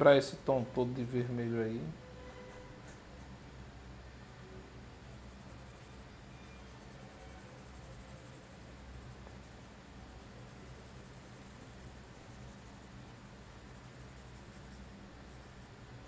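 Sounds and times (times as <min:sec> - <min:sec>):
low steady hum: 0:00.0 - 0:16.0
pencil scratching on paper: 0:04.9 - 0:15.7.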